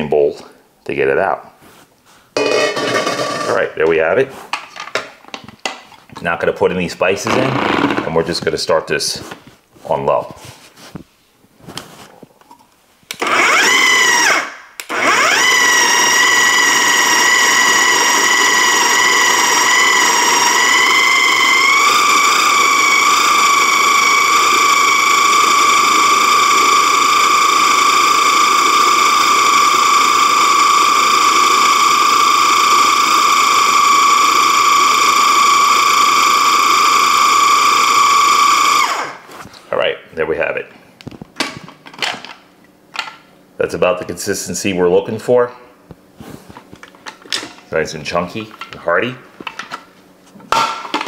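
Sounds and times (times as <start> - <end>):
food processor motor whining: 13.1 - 39.2.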